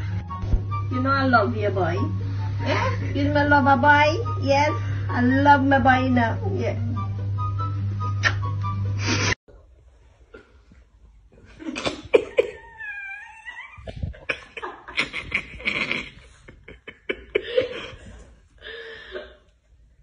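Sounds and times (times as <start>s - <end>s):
dog whiny cry: 12.2s - 14.4s
small dog snarling and yapping: 12.5s - 14.3s.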